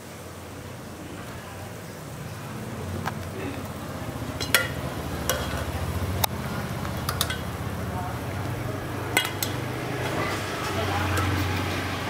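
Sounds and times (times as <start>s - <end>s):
water boiling hiss: 0.0s - 12.0s
metal tongs clinking on pots: 3.6s - 7.8s, 8.4s - 11.8s.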